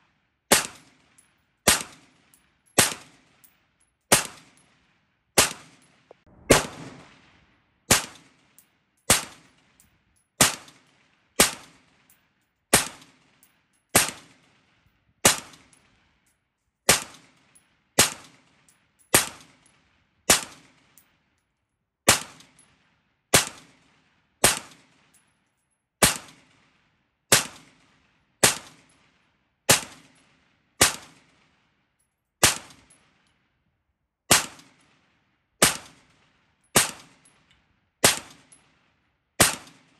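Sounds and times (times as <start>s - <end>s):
rifle shots with echo: 1.7s - 2.0s, 2.8s - 3.2s, 4.1s - 4.6s, 5.4s - 8.5s, 9.1s - 9.5s, 27.3s - 28.8s, 30.8s - 31.5s, 32.4s - 32.9s, 34.3s - 34.7s, 35.6s - 36.1s, 39.4s - 39.9s.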